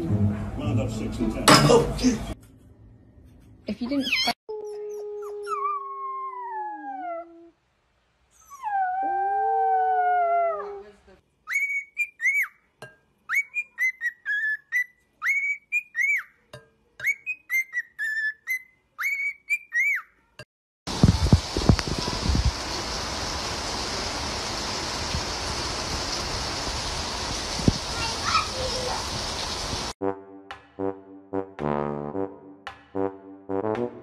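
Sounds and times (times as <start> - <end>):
puppy howling: 4.5 - 7.5, 8.4 - 10.9
cockatiel whistling chirps: 11.5 - 12.6, 13.3 - 16.3, 17.0 - 20.1.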